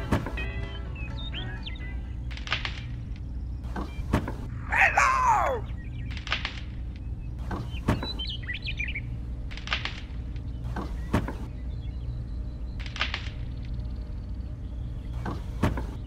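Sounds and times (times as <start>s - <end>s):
birds chirping: 0.0s - 16.0s
steady low hum: 0.0s - 16.0s.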